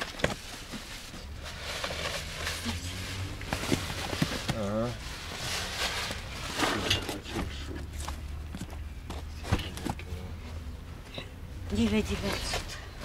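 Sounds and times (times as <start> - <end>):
cardboard boxes being shifted: 0.0 - 10.0.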